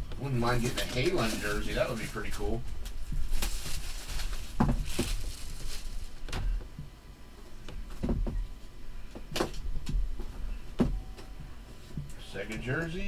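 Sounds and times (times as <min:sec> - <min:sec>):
plastic shrink wrap crinkling: 0:00.5 - 0:06.6.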